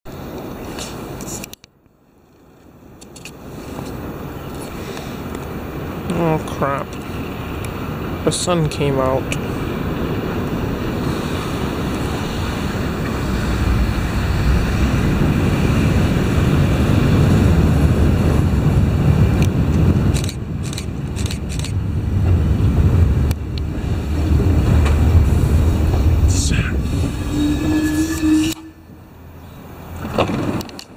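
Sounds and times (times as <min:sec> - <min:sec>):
train wheels rumbling on rail: 0:09.2 - 0:30.9
short low brake squeal: 0:27.3 - 0:28.8.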